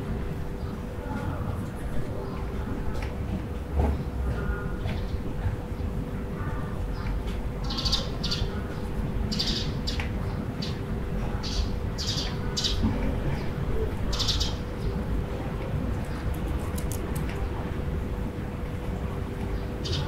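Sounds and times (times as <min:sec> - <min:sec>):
low hum and rumble: 0:00.0 - 0:20.0
small birds chirping: 0:04.0 - 0:15.0, 0:19.4 - 0:20.0.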